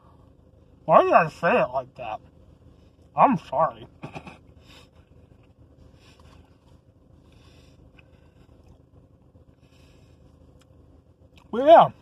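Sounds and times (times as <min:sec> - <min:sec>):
steady low hum: 0:00.0 - 0:12.0
faint chewing: 0:04.6 - 0:11.5.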